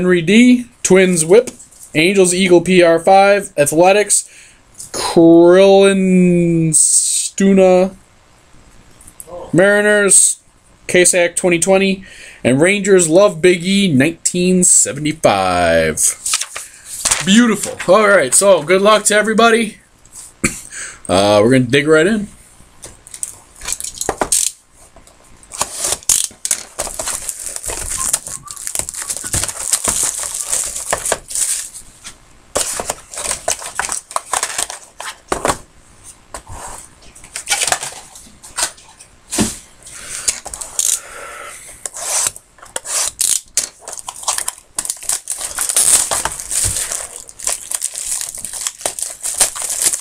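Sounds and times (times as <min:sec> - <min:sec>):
wrapping tearing and crinkling: 0:16.2 - 0:17.7, 0:23.1 - 0:24.6, 0:25.4 - 0:31.8, 0:32.6 - 0:35.2, 0:42.1 - 0:50.0.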